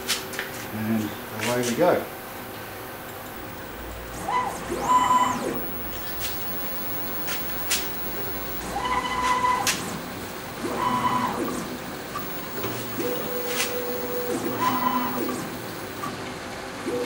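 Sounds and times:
low steady hum: 2.2s - 16.1s
lathe motor whines: 3.1s - 16.2s
sharp clicks: 3.4s - 8.8s.

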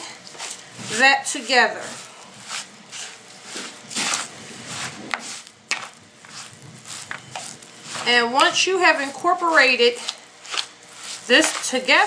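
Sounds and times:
spoon squishing raw meat mix: 5.2s - 12.0s.

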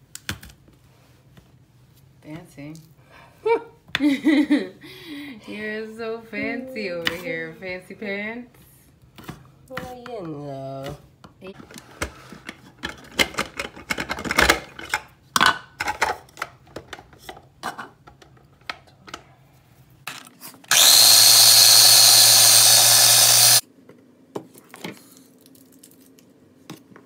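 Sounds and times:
food chopper motor whirring: 20.7s - 23.6s.

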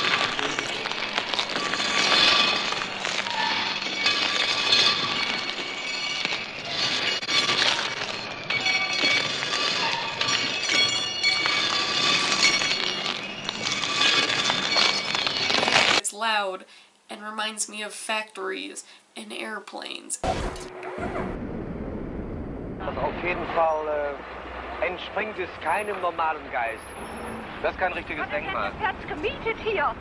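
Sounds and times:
dense industrial noise din: 0.0s - 16.0s, 20.2s - 30.0s
crackle: 0.0s - 16.1s, 20.2s - 28.2s.

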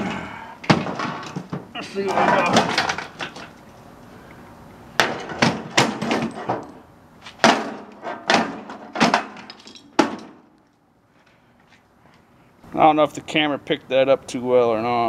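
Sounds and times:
metal parts knocking on concrete: 7.4s - 10.4s.

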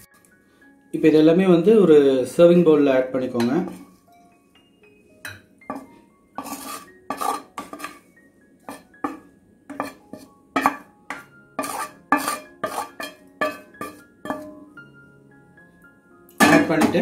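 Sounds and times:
spatula scraping a metal pan: 5.7s - 8.1s, 8.7s - 14.6s.

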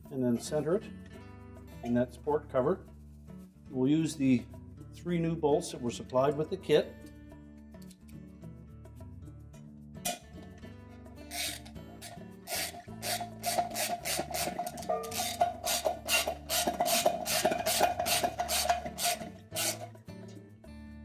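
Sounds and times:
metal cover ringing: 10.0s - 10.3s, 12.0s - 20.0s
ratchet strokes: 11.3s - 20.0s.

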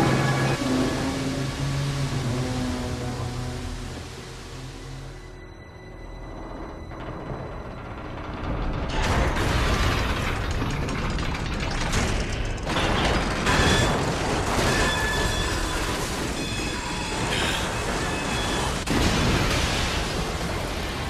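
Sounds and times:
chain and gear mechanism grinding: 6.8s - 18.2s.

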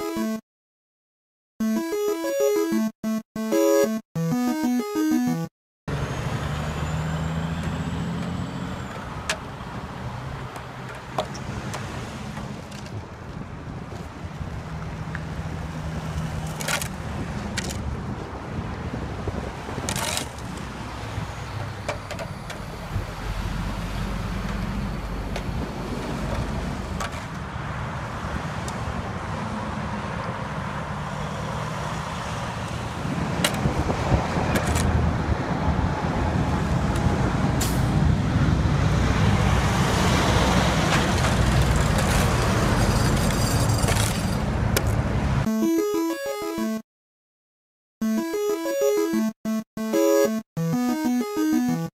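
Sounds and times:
truck engines running: 4.3s - 45.5s
highway traffic passing: 5.9s - 45.5s.

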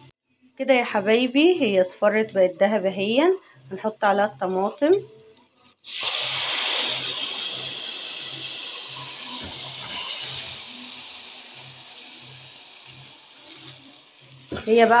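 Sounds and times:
oil sizzling loudly: 5.8s - 15.0s.

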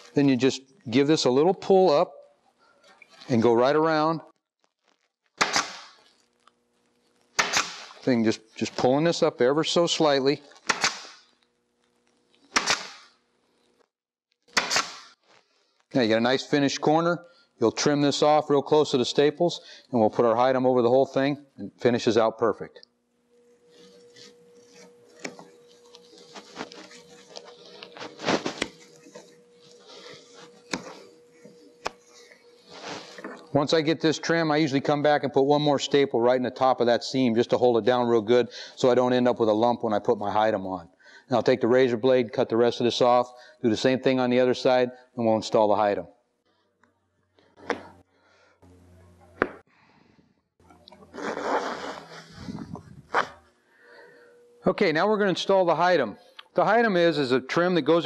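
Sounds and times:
shears snipping fabric: 10.5s - 11.3s, 23.6s - 33.3s, 51.0s - 53.4s
sharp click: 10.7s - 11.2s
faint steady hum: 14.9s - 46.5s, 47.4s - 58.0s
cloth rustling scrape: 23.6s - 33.3s, 51.1s - 53.5s.

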